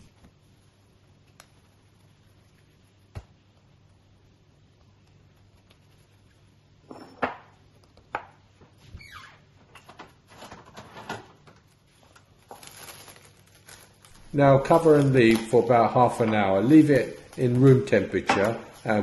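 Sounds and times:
cling film crinkling: 10.2s - 19.0s.

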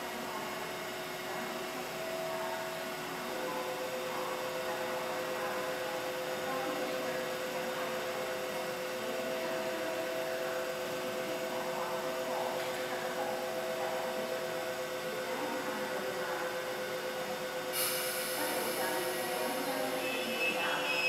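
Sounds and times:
train electrical hum: 0.0s - 21.0s
hiss: 17.7s - 19.7s.

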